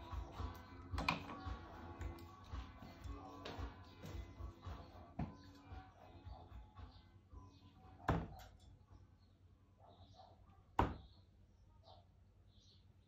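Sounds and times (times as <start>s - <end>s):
darts thudding into dartboard: 8.1s - 8.5s, 10.8s - 11.1s.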